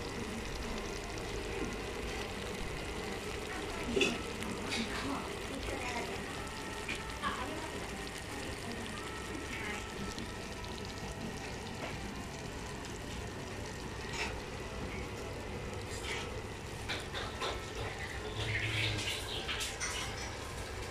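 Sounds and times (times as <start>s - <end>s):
food sizzling in a pot: 0.0s - 20.9s.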